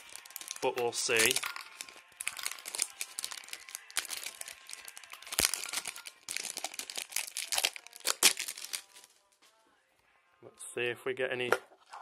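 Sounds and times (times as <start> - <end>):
plastic and foil packaging crinkling: 0.0 - 9.2.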